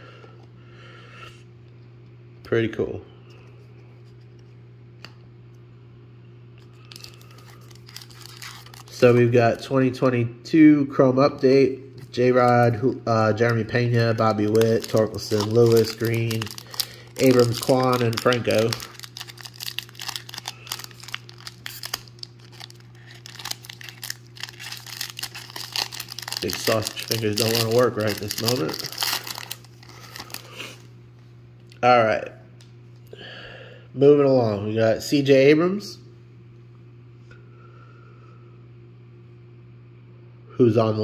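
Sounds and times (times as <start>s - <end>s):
steady low hum: 0.0s - 41.0s
foil pack rustling and clicking: 6.9s - 9.1s, 13.4s - 30.5s.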